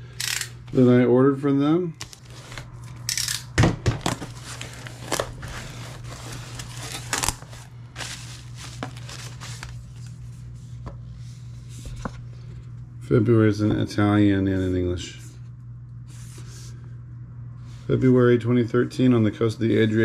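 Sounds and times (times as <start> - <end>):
steady low hum: 0.0 - 20.0
plastic sleeve crinkling: 4.0 - 10.3.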